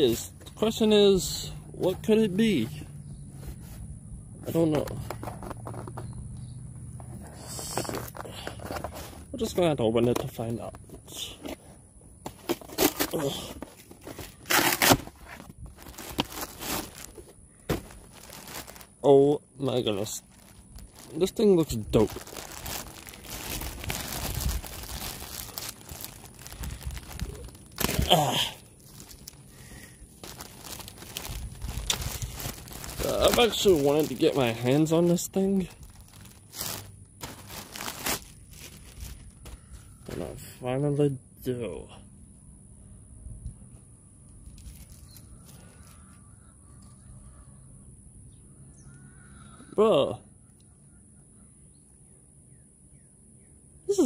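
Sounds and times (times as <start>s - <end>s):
distant birds calling: 0.0s - 9.3s, 15.8s - 21.6s, 39.2s - 40.2s, 44.9s - 53.8s
plastic bag crinkling and tearing: 12.5s - 19.0s, 19.8s - 39.4s.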